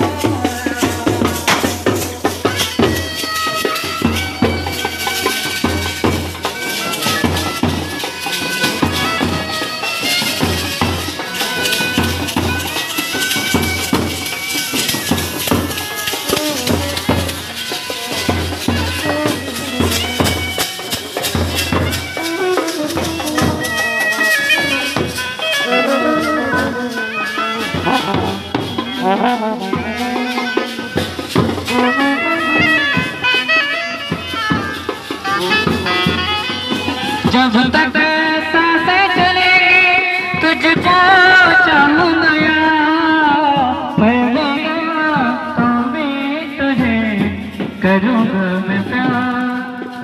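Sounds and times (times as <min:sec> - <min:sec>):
bass drums beating: 0:00.0 - 0:03.4, 0:10.2 - 0:33.4
brass horns playing melody: 0:05.1 - 0:37.3.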